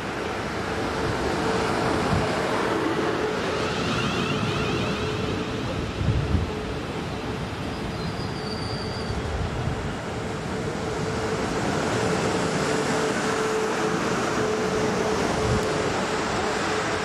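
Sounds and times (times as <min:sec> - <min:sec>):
electric train whine: 0:00.0 - 0:17.0
train wheels rumbling on rail: 0:00.0 - 0:17.0.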